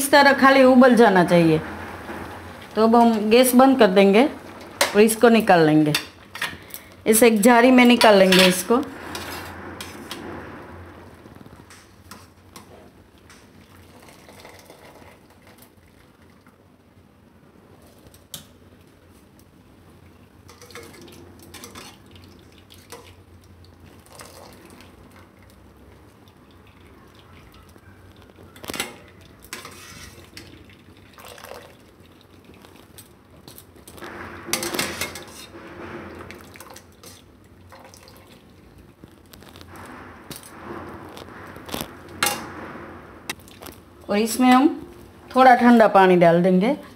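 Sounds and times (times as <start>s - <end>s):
steel utensils clinking on cookware: 7.8s - 9.5s
water dripping and splashing: 20.5s - 34.0s, 36.3s - 39.4s, 43.3s - 43.9s.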